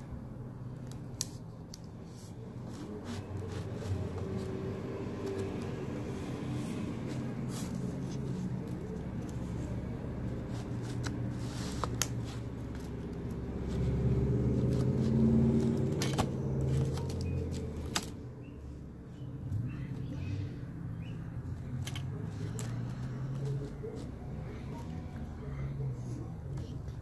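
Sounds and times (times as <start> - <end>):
paper and sticky tape rustling: 0.6 - 18.2, 21.4 - 25.2.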